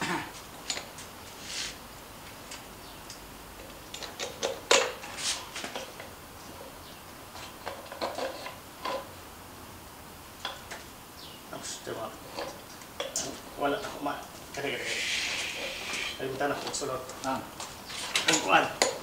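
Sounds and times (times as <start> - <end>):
metal clicks and knocks: 3.6 - 5.0.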